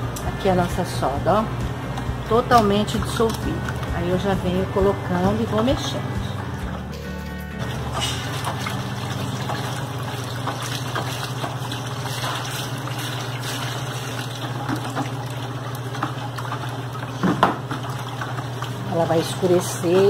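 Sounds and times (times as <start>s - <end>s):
liquid trickling and splashing: 7.6s - 20.0s.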